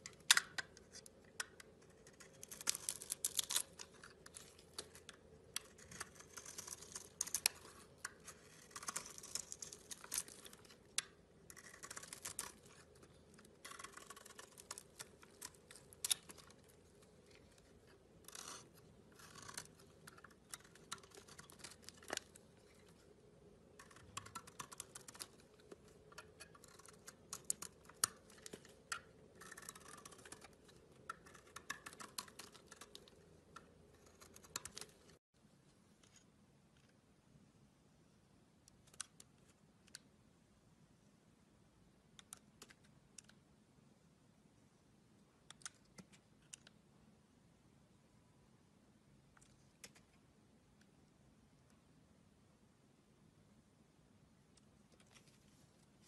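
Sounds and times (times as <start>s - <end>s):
knife blade scraping soap: 5.6s - 10.6s, 11.5s - 16.6s, 18.2s - 22.3s.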